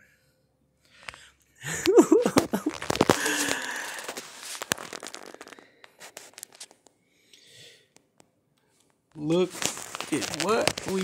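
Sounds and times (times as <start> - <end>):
packaging rustling and tearing: 2.2 - 6.8, 9.2 - 11.0.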